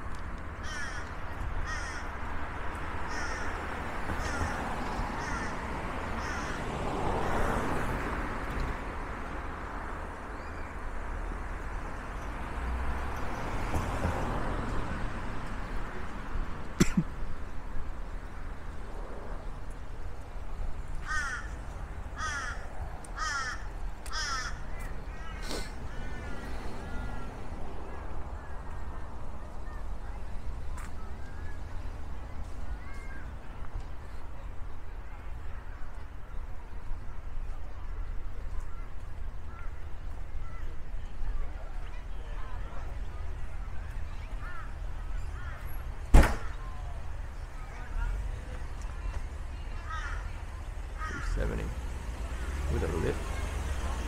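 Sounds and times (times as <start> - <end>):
sharp knock: 46.1 - 46.5.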